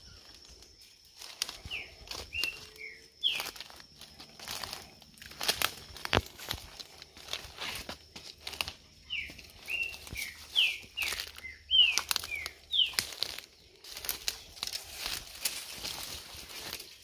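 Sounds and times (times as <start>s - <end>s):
footsteps crunching through dry leaves: 0.0s - 17.0s
bird whistling downward notes: 9.0s - 13.0s.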